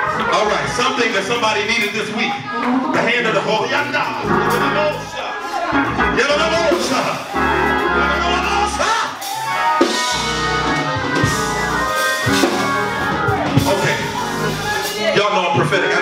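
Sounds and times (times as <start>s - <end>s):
band playing praise music: 0.0s - 16.0s
voices singing: 0.0s - 16.0s
sustained bass line: 4.2s - 8.8s, 10.0s - 14.8s.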